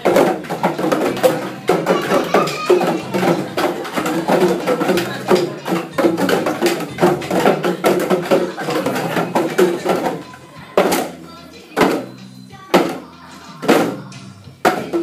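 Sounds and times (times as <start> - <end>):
hand drums struck with sticks: 0.0 - 11.1
music: 0.0 - 15.0.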